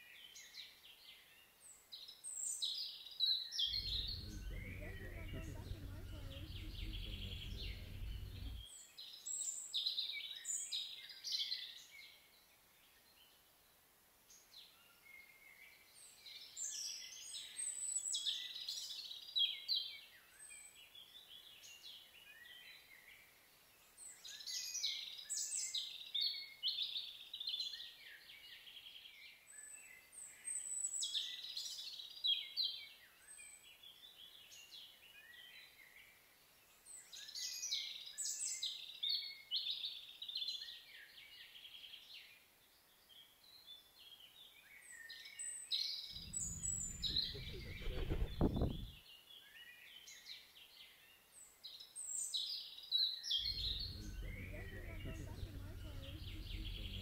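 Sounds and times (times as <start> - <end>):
songbirds singing: 3.6 - 8.7, 45.8 - 50.2, 51.8 - 57.0
low rumble: 3.7 - 8.6, 46.2 - 49.0, 53.4 - 57.0.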